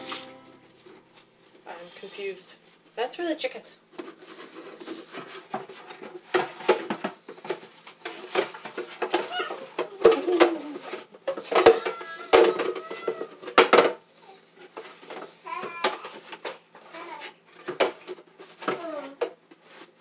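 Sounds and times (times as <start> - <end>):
plastic rubbing: 3.9 - 13.7
hard plastic knocking and clattering: 4.8 - 12.8, 17.6 - 19.4.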